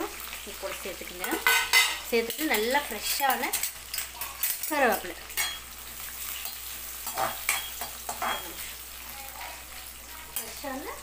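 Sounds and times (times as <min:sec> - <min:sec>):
onions sizzling in hot oil: 0:00.0 - 0:11.0
spoon scraping and knocking pan: 0:01.2 - 0:08.8.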